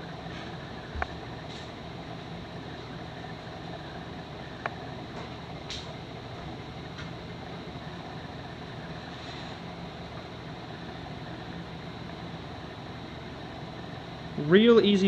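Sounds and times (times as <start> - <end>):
low room hum with hiss: 0.0 - 15.0.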